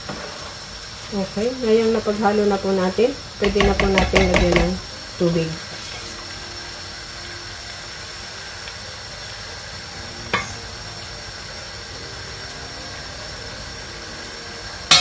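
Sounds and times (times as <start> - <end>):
food sizzling in a pan: 0.0 - 15.0
ladle clinking on metal pot: 3.4 - 4.8.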